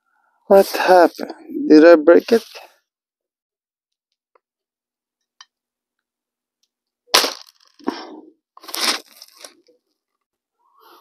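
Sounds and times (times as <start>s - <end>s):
glass bottle breaking: 7.1s - 7.9s.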